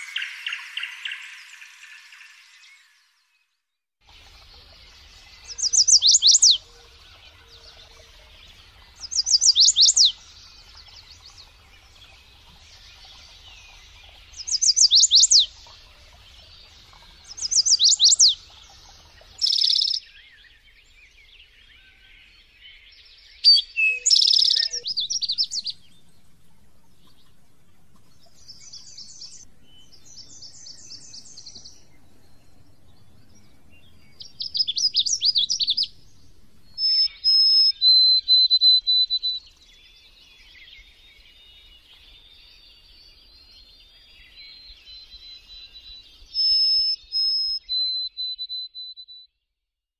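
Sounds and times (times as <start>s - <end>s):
songbirds singing: 0.0s - 49.3s
rapid twittering trills: 4.1s - 20.2s
clear whistled bird notes: 19.3s - 25.8s, 36.7s - 49.3s.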